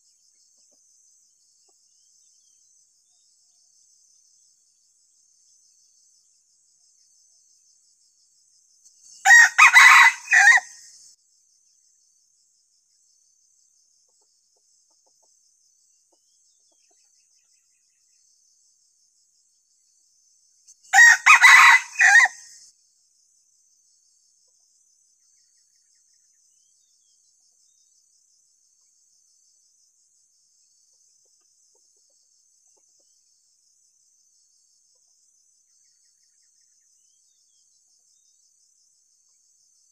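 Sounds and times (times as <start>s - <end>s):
high insect trill: 0.0s - 39.9s
rooster crowing: 9.2s - 10.8s, 20.9s - 22.5s.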